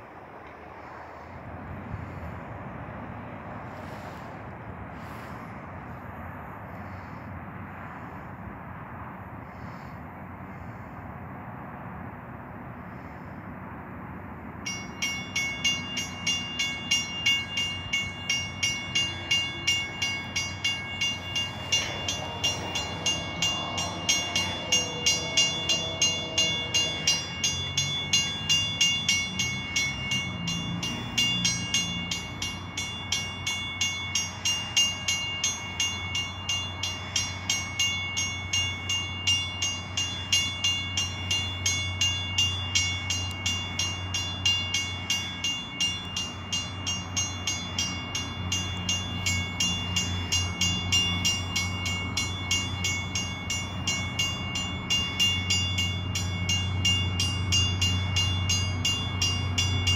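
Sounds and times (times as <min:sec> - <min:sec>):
low rumble of train: 0:00.0 - 0:59.9
railroad warning bell ringing: 0:14.5 - 0:59.9.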